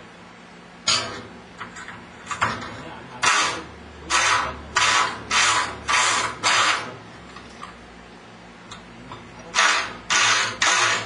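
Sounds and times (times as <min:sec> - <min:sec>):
power tool short bursts: 0:09.6 - 0:11.0.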